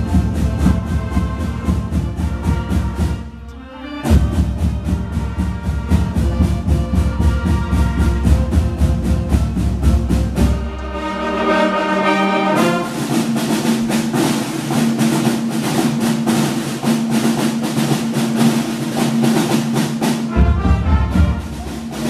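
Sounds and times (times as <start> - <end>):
snare and bass drums beat: 0.0 - 3.5, 4.1 - 10.8, 12.6 - 22.0
brass chord: 0.0 - 13.4, 20.3 - 22.0.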